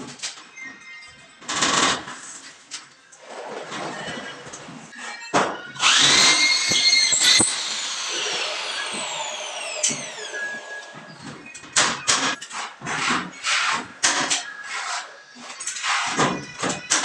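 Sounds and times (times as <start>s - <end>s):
electric drill whirring: 5.8s - 12.4s.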